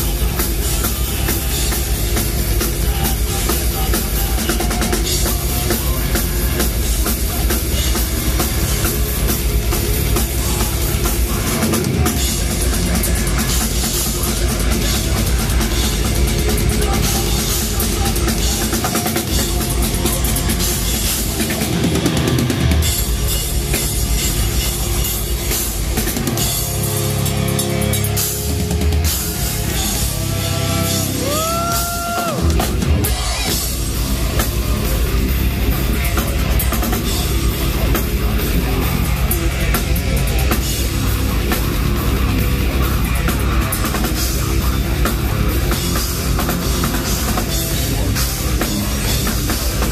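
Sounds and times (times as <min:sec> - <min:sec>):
metal band playing live: 0:00.0 - 0:49.9
screamed vocals: 0:30.5 - 0:33.5.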